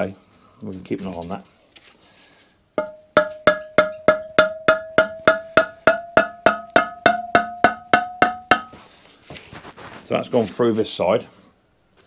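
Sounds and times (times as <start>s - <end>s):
hammer tapping metal shaft: 2.8s - 8.8s.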